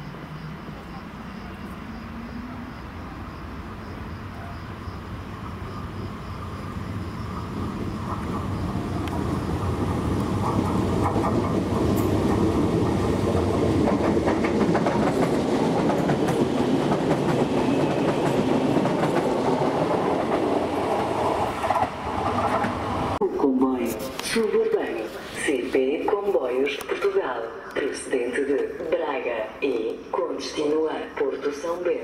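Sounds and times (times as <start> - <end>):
train passing: 0.0 - 32.0
wheels clicking over rail joints: 8.0 - 22.8.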